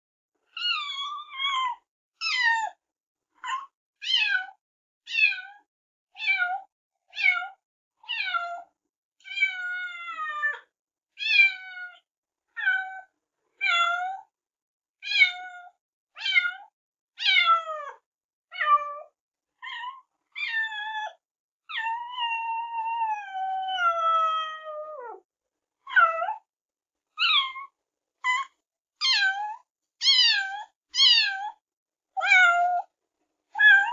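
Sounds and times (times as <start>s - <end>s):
cat meowing: 0.6s - 2.7s, 15.0s - 19.0s, 19.6s - 25.2s, 27.2s - 27.7s, 28.3s - 31.6s, 32.2s - 32.9s, 33.6s - 33.9s.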